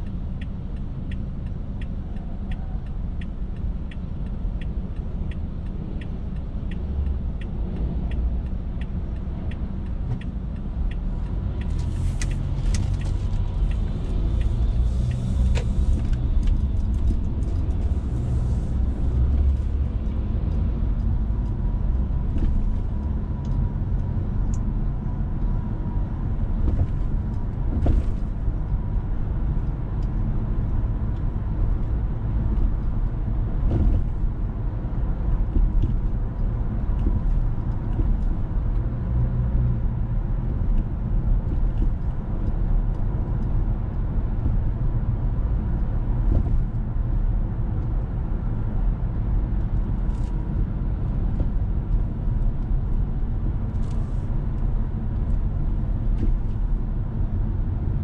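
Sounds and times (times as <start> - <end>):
turn signal clicking: 0.0 - 39.7
car engine rumble from inside: 0.0 - 58.0
tyre road noise: 0.0 - 58.0.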